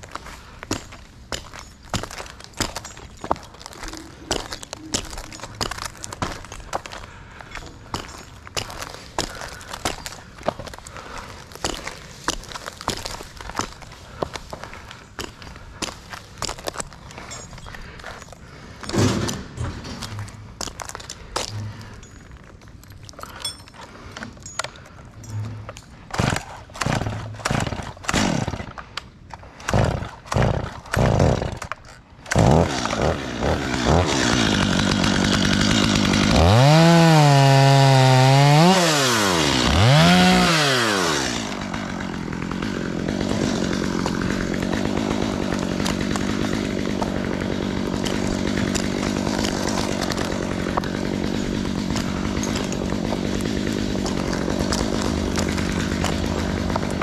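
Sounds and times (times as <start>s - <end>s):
chainsaw pull-start cord: 23.0s - 28.8s, 29.4s - 57.0s
chainsaw running and revving: 25.4s - 28.8s, 29.5s - 57.0s.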